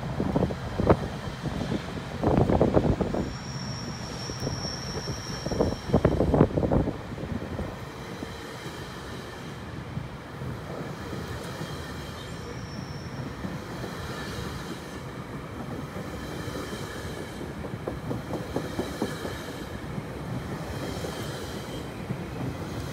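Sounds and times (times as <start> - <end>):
train coaches rumbling: 0.0 - 22.9
faint high wheel squeal: 2.8 - 6.5, 11.2 - 15.1
rail joint clacks: 10.5 - 22.9.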